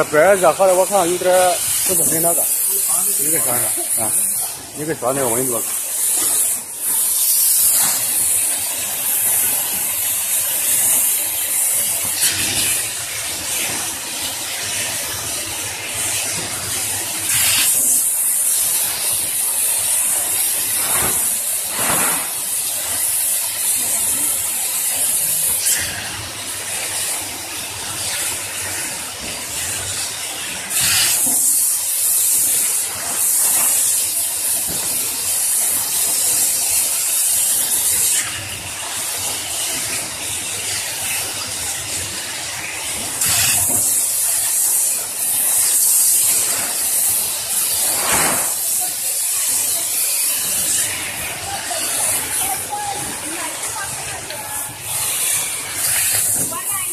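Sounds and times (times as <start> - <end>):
welding machine hissing: 0.0 - 56.9.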